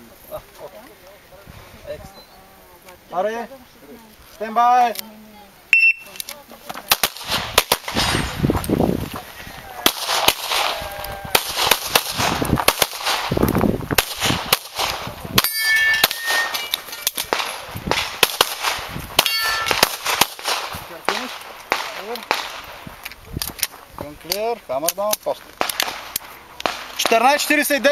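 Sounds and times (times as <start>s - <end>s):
rapid pistol shots: 6.9s - 8.4s, 9.8s - 10.8s, 11.4s - 13.4s, 14.0s - 22.8s
steel targets clanging: 15.4s - 17.6s, 19.2s - 19.8s.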